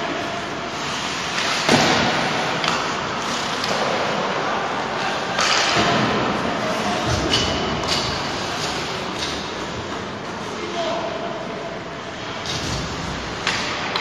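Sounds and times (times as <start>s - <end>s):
skates scraping on ice: 0.0s - 10.6s
hockey sticks and puck knocking: 1.1s - 4.2s, 5.2s - 6.4s, 7.0s - 10.1s, 12.6s - 14.0s.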